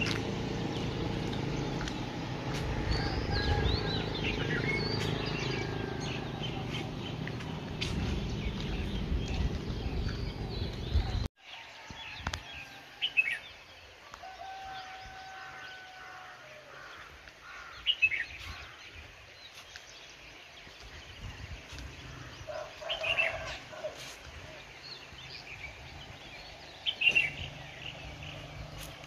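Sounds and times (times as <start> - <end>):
low rumbling noise: 0.0 - 11.3.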